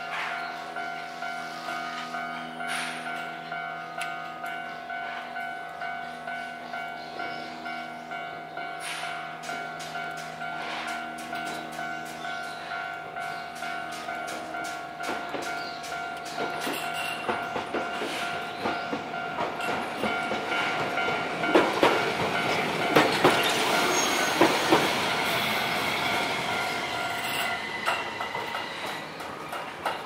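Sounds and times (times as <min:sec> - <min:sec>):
level crossing alarm ringing: 0:00.0 - 0:28.6
tram wheels clacking over rail joints: 0:08.6 - 0:30.0.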